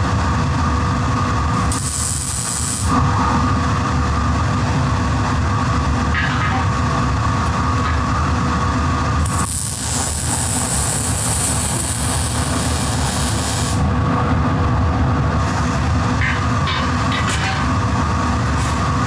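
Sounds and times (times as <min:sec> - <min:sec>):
low machine rumble: 0:00.0 - 0:19.0
welding arc hissing: 0:01.6 - 0:03.0, 0:09.2 - 0:13.9.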